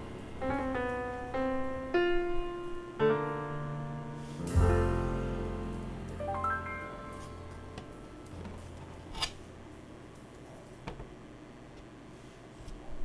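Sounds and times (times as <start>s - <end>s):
slow piano melody: 0.0s - 9.8s.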